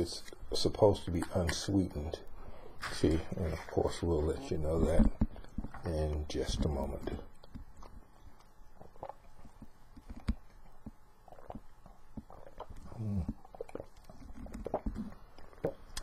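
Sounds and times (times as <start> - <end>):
person swallowing: 11.3 - 16.0.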